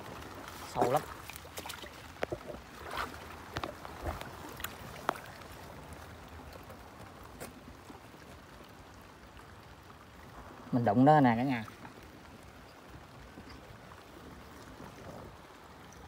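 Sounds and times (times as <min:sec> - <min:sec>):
wet sloshing: 0:00.0 - 0:06.7
steady rain: 0:00.0 - 0:16.0.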